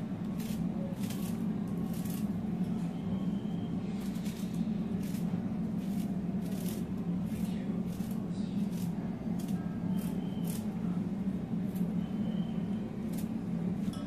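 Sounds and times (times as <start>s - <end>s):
steady low hum: 0.0s - 14.0s
knife cutting cabbage: 0.3s - 2.4s, 3.9s - 10.8s.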